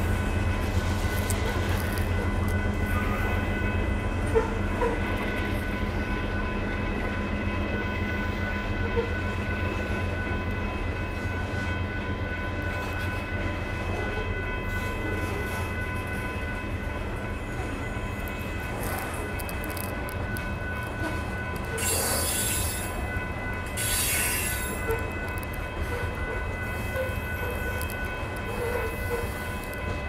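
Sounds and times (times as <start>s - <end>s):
high steady tones: 9.4s - 30.0s.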